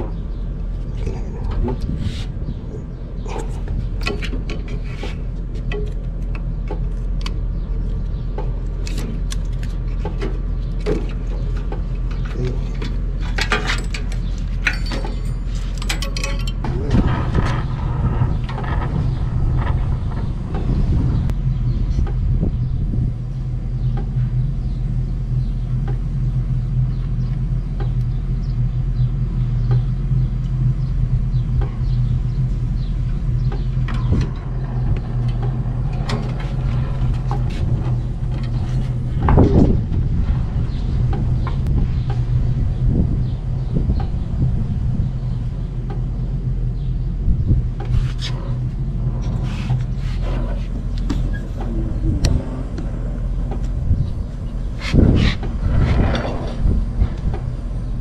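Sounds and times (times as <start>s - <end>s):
brazing torch rumbling: 0.0s - 58.0s
metal tools clinking: 13.3s - 16.7s.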